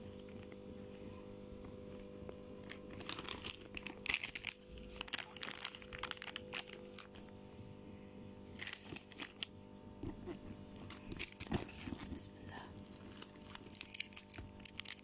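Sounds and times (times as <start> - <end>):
plastic packaging crinkling: 0.0 - 0.7, 2.6 - 7.4, 8.5 - 15.0.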